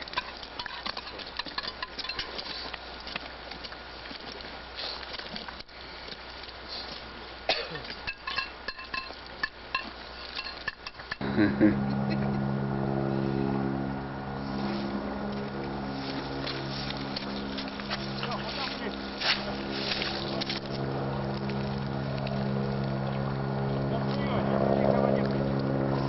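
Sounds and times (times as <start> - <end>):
clicks and light clinks: 0.0 - 3.7, 7.8 - 11.2
low motor drone: 11.1 - 26.0.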